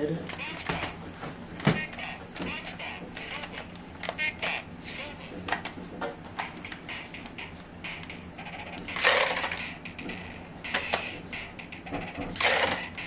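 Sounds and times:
plastic toy controls clicking: 8.8 - 9.6, 12.3 - 12.9.

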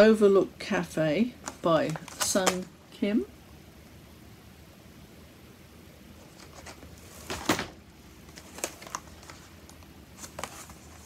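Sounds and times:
plastic packaging crackly rustle: 1.4 - 2.7, 6.2 - 11.0.

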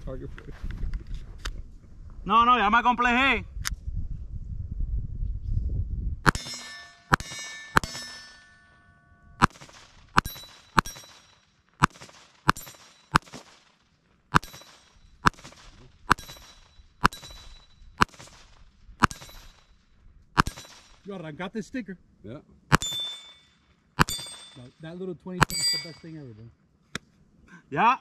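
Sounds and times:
pistol shots: 6.3 - 8.2, 9.4 - 19.7, 20.4 - 21.1, 22.7 - 24.6, 25.4 - 26.0
steel target ringing: 6.3 - 13.4, 14.4 - 18.4, 19.0 - 19.8, 22.7 - 26.3.

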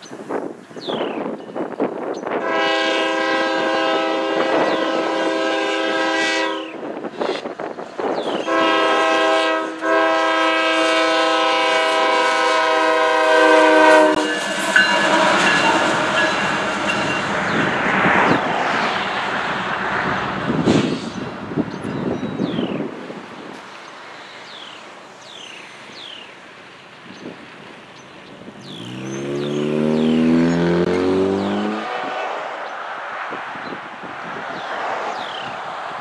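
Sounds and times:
locomotive air horn blasts: 2.4 - 6.9, 8.4 - 17.0, 29.8 - 32.6.

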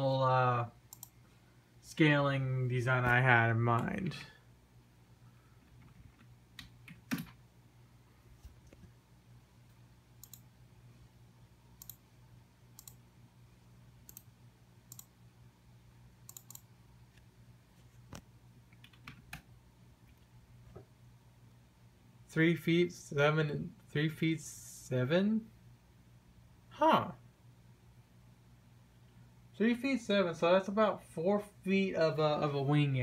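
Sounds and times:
steady low hum: 0.0 - 33.0
computer keyboard keystrokes: 0.9 - 1.1, 5.8 - 7.4, 10.2 - 10.4, 11.8 - 12.0, 12.8 - 13.0, 16.3 - 16.6, 18.7 - 19.5.

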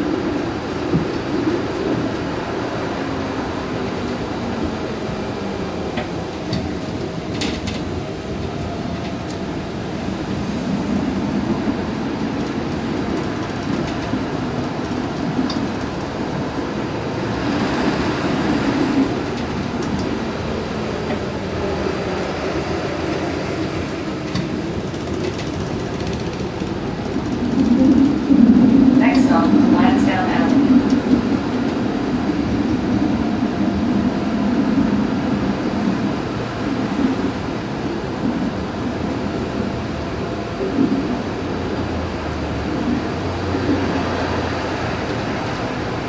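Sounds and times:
streetcar wheels rumbling: 0.0 - 46.0.

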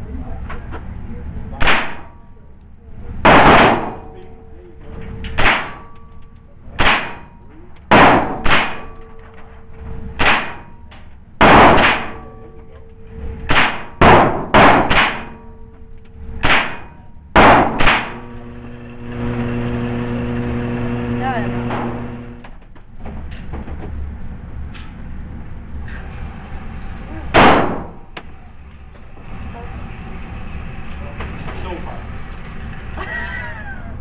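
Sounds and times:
steady hum: 0.0 - 34.0
rifle shots echoing: 3.2 - 4.0, 6.8 - 7.3, 7.9 - 8.9, 11.4 - 12.2, 13.5 - 15.4, 17.4 - 18.2, 27.4 - 28.0.

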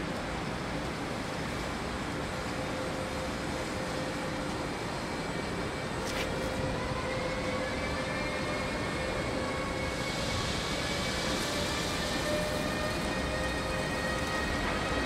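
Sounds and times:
electric locomotive hum: 0.0 - 15.0
whine rising in pitch: 3.3 - 15.0.

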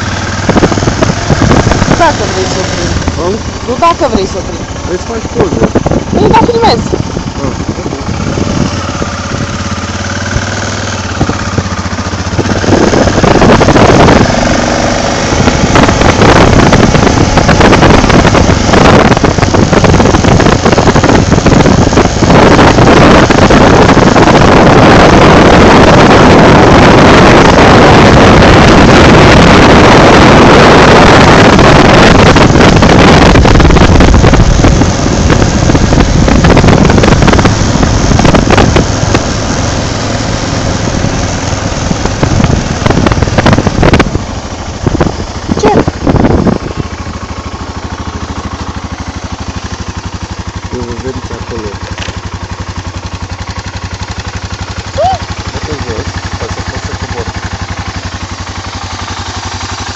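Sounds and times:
wind buffeting microphone: 0.0 - 50.2
motorcycle engine humming: 0.0 - 59.9.

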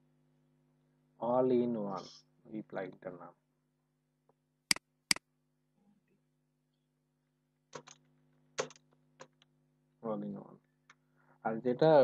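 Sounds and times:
faint steady hum: 0.0 - 12.0
computer mouse clicks: 7.8 - 8.0.

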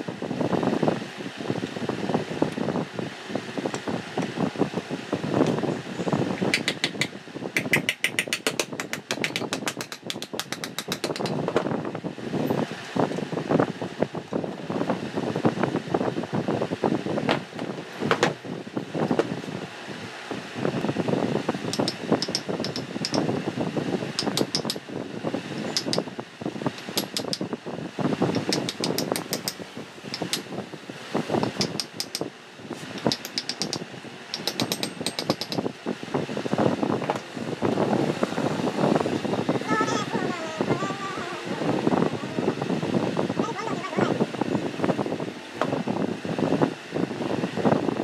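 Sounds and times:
constant rushing noise: 0.0 - 48.0
rapid small metallic clicks: 6.4 - 11.4, 21.7 - 23.3, 24.2 - 24.8, 25.7 - 26.1, 26.8 - 27.5, 28.3 - 30.5, 31.4 - 32.3, 32.9 - 35.7.

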